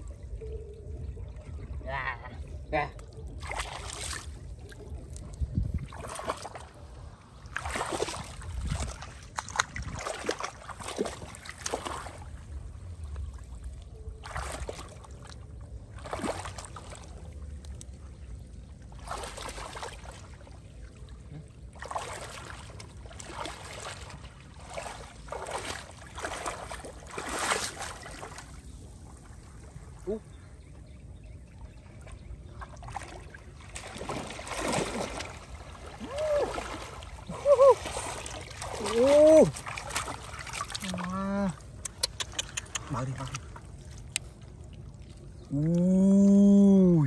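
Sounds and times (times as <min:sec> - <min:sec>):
hands splashing in shallow water: 0:03.4 - 0:06.8, 0:07.4 - 0:12.3, 0:14.2 - 0:15.2, 0:21.8 - 0:28.6, 0:32.6 - 0:44.7
low steady rumble: 0:08.3 - 0:19.1.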